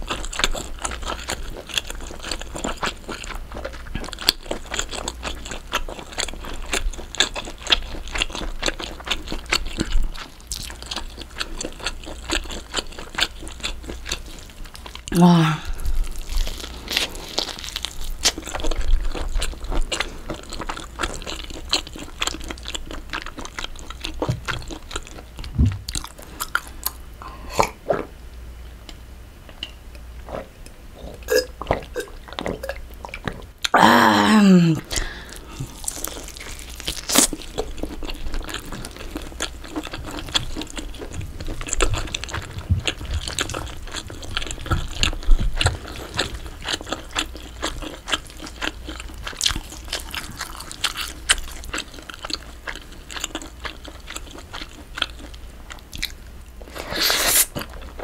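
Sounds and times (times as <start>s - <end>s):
biting and chewing mouth sounds: 0.0s - 28.2s, 34.8s - 58.0s.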